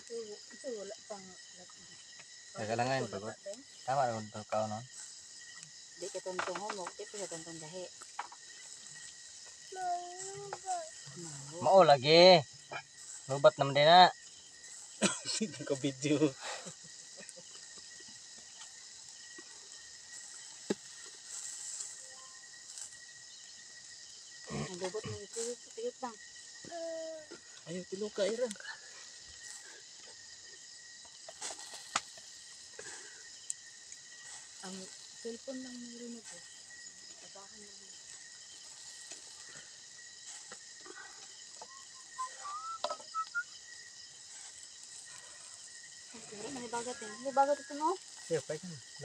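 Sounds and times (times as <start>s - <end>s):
meat sizzling over coals: 0.0s - 49.0s
wood fire hissing and crackling: 0.0s - 49.0s
whistled notes: 41.6s - 43.6s.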